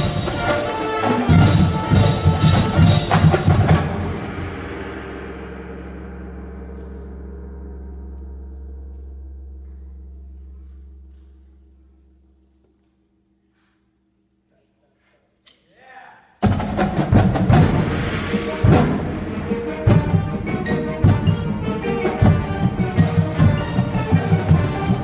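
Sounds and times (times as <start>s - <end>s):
marching band held low chord: 0.0s - 11.4s, 16.6s - 25.0s
marching band percussion hits: 0.0s - 11.4s, 16.4s - 25.0s.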